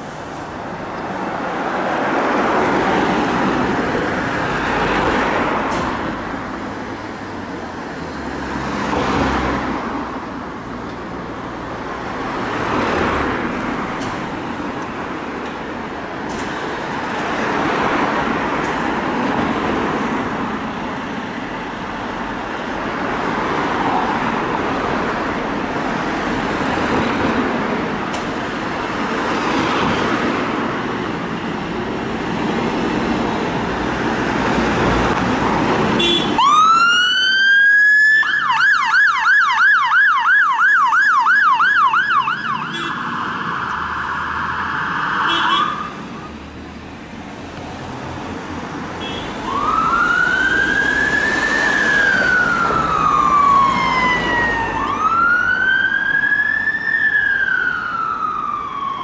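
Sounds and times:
road traffic passing: 0.0s - 59.0s
emergency siren wailing: 36.2s - 46.4s, 49.3s - 59.0s.

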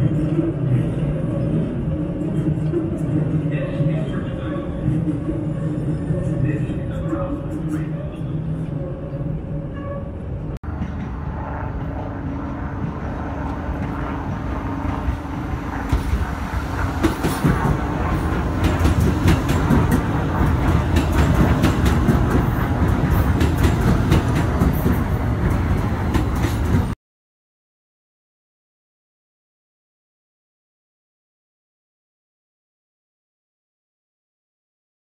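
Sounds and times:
subway train rumble: 0.0s - 27.0s.

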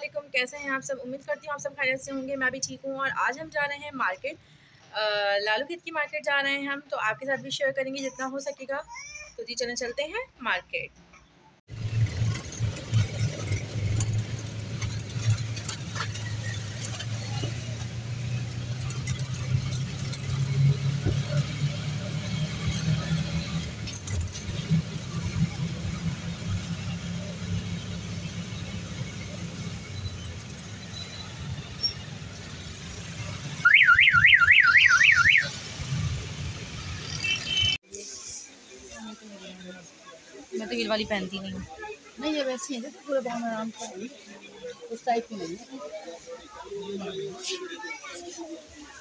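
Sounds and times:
auto-rickshaw engine droning: 11.7s - 37.8s
electronic warbling siren tone: 33.6s - 35.5s.

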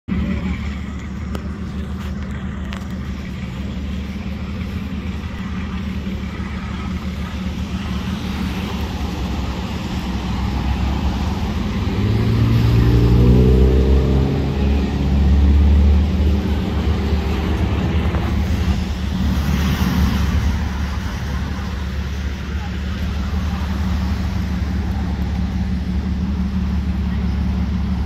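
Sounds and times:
vehicle engines humming: 0.0s - 28.0s
vehicle driving past: 8.1s - 21.6s.

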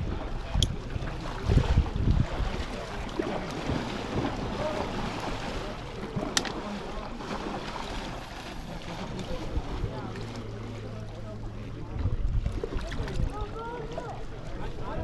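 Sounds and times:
wind on microphone: 0.0s - 4.6s
river water rushing: 2.4s - 10.8s.

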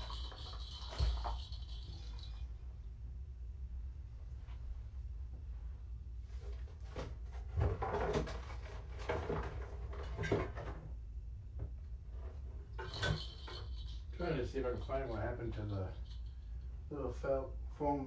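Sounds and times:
person rummaging through objects: 0.0s - 2.4s, 12.2s - 14.1s
steady low hum: 0.0s - 18.0s.

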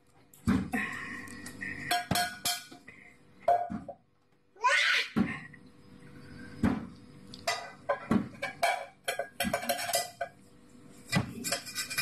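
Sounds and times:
pot and dishes clanking: 1.7s - 2.9s, 7.4s - 10.4s, 11.1s - 12.0s.

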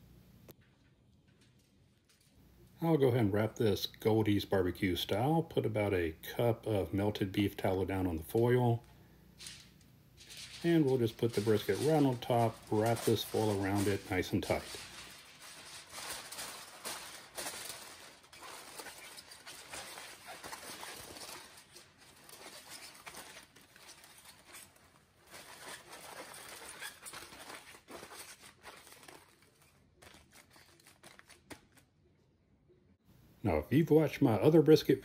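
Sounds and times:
aluminum foil crinkling: 0.6s - 2.5s, 6.5s - 32.0s.

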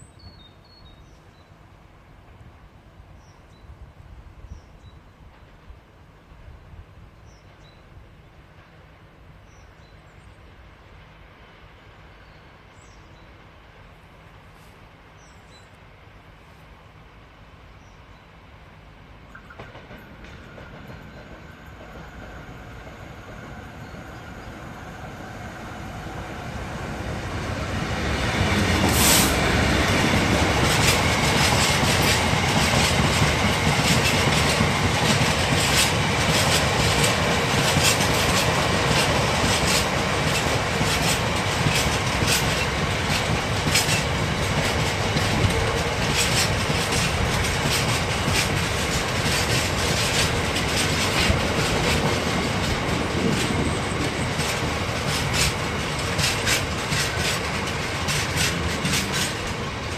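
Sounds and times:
diesel locomotive engine: 5.2s - 59.9s
wagon wheels clicking over rail joints: 30.2s - 59.9s.

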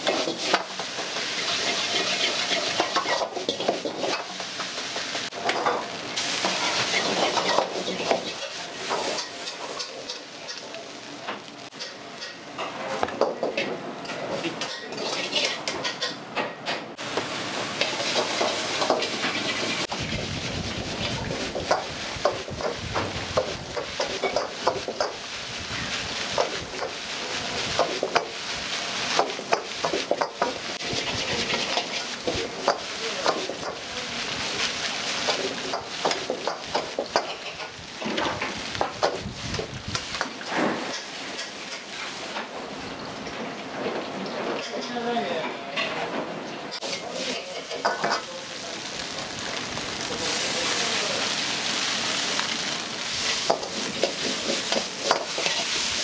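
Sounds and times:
ladle scraping a wok: 0.0s - 10.7s, 14.1s - 16.2s, 17.8s - 42.4s, 46.8s - 48.2s, 50.3s - 56.0s
food sizzling in oil: 0.0s - 13.6s, 17.0s - 43.3s, 46.8s - 56.0s.

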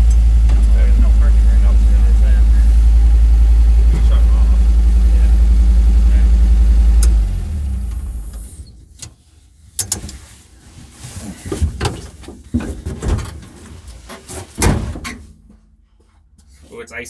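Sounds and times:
engine idling and shutting off: 0.0s - 9.0s
knocks and clatters in car cab: 11.5s - 13.7s.

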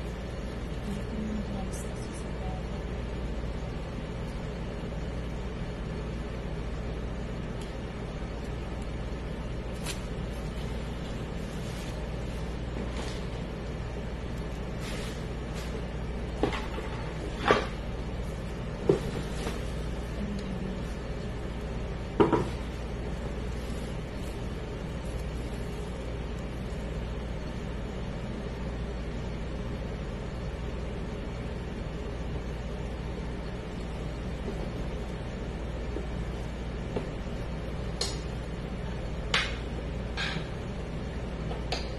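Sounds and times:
steady low hum: 0.0s - 41.9s
pastry sheets rustling: 9.6s - 13.6s, 22.5s - 27.0s.

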